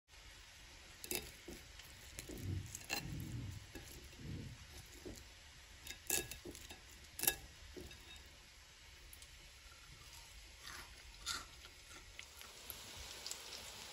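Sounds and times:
crunching fried crust: 0.7 - 13.9
fork clicking on plate: 1.0 - 5.2, 5.8 - 8.2.

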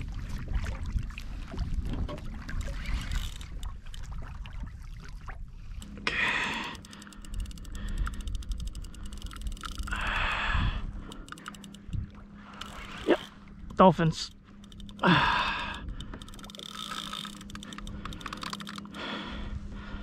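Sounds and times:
water around kayak: 0.0 - 20.0
wind: 0.0 - 20.0
fine even ticking: 5.8 - 19.3
person breathing out heavily: 6.0 - 8.3, 9.8 - 11.4, 15.0 - 16.3, 17.6 - 20.0.

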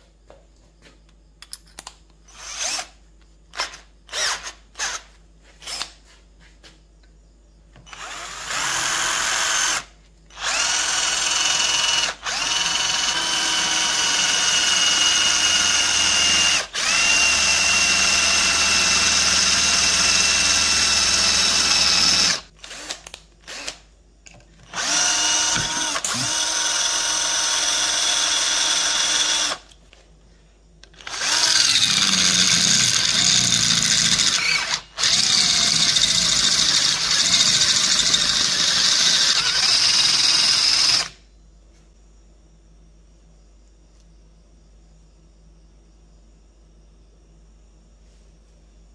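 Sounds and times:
electric drill whining: 2.3 - 6.0, 7.8 - 23.8, 24.6 - 29.7, 30.8 - 41.2.

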